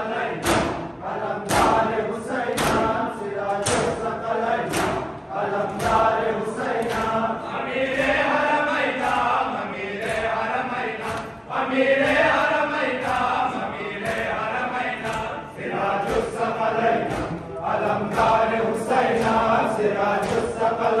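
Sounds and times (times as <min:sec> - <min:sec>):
men chanting together: 0:00.0 - 0:21.0
hands slapping bare chests: 0:02.6 - 0:02.9, 0:03.5 - 0:04.0, 0:04.6 - 0:06.1, 0:06.7 - 0:07.2, 0:09.0 - 0:11.4, 0:12.0 - 0:17.4, 0:20.1 - 0:20.7.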